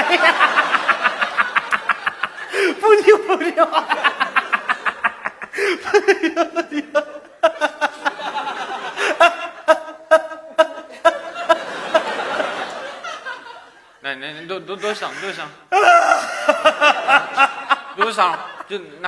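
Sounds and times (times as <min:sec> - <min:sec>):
man laughing: 0:00.0 - 0:12.6, 0:15.1 - 0:19.0
man wailing and sobbing: 0:02.5 - 0:04.1, 0:05.4 - 0:08.0, 0:09.0 - 0:11.6, 0:14.8 - 0:17.6.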